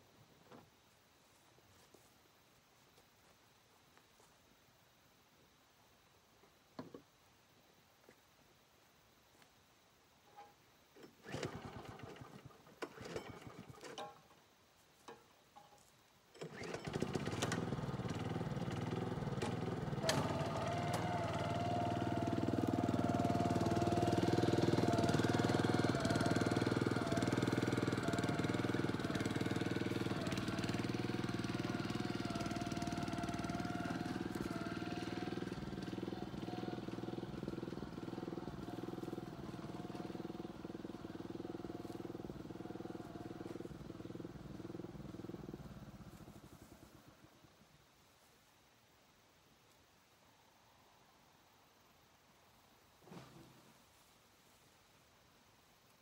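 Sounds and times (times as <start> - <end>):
vehicle engine running: 16.6 - 47.3.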